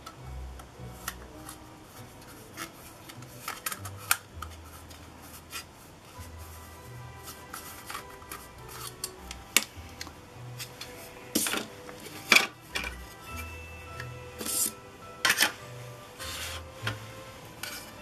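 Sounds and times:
quiet background music: 0:00.0 - 0:18.0.

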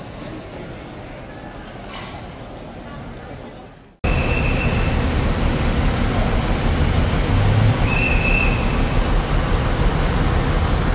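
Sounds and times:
vehicle roar: 0:04.0 - 0:10.9.

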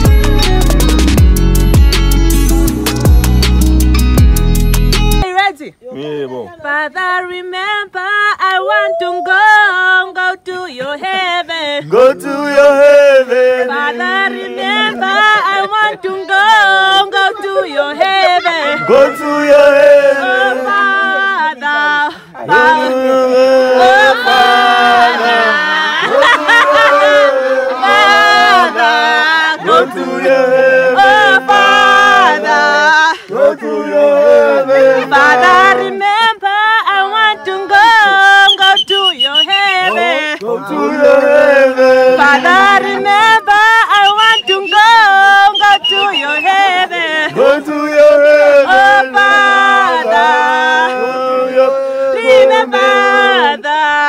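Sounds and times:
man singing: 0:10.7 - 0:27.9, 0:37.3 - 0:54.0
second voice singing long notes: 0:18.2 - 0:29.0.

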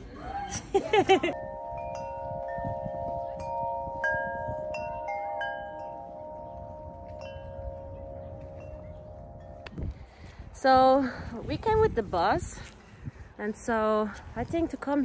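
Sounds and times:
metal tube wind chimes ringing: 0:01.3 - 0:10.6.

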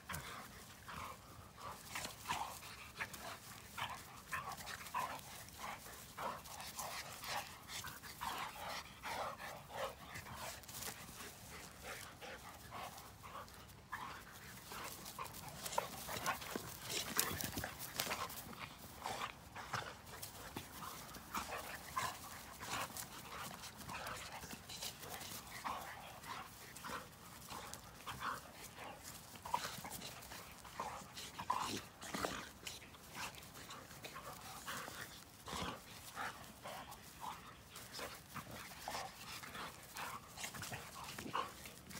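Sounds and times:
dog play noises: 0:00.0 - 0:41.9
scuffling and clicks: 0:09.4 - 0:41.9.

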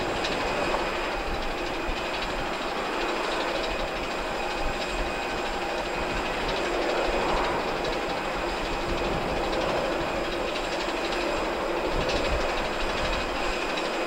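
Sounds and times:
jet engines rumbling: 0:00.0 - 0:14.0.

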